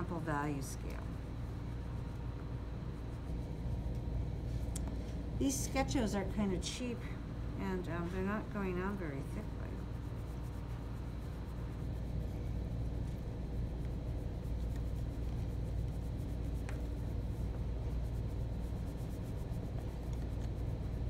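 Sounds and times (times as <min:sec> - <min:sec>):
low room hum: 0:00.0 - 0:21.0
pastel scratching on paper: 0:00.2 - 0:04.1, 0:07.9 - 0:21.0.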